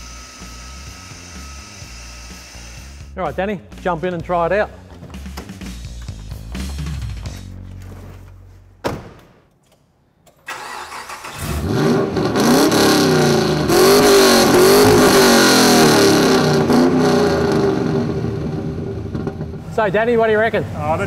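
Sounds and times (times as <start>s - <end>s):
car door thudding shut: 8.8s - 9.4s
car engine starting and revving: 10.5s - 19.7s.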